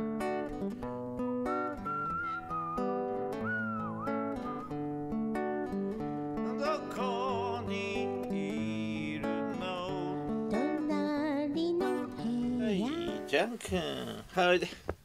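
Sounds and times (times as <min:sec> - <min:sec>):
acoustic guitar: 0:00.0 - 0:15.0
man singing with vibrato: 0:06.5 - 0:10.4, 0:12.0 - 0:14.3.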